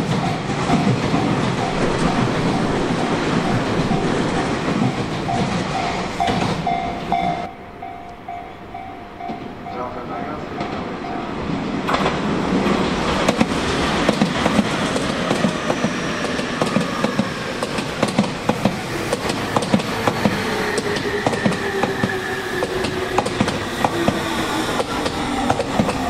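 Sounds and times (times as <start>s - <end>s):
train wheels clicking over rail joints: 0.0s - 8.3s, 11.8s - 26.0s.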